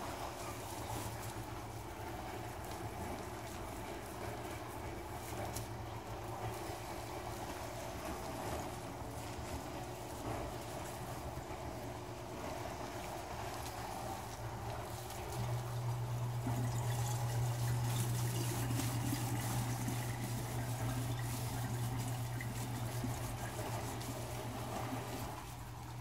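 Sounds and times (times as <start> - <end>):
tap water running into sink: 15.4 - 25.4.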